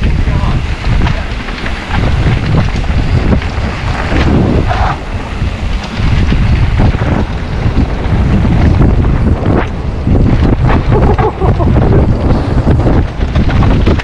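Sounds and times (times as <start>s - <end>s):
bike knocks and rattles: 0.0s - 14.0s
wind buffeting microphone: 0.0s - 14.0s.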